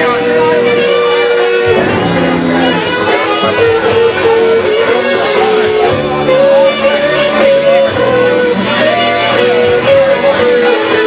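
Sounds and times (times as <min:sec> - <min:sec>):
distorted electric guitar: 0:00.0 - 0:11.0
saxophone melody: 0:00.0 - 0:11.0.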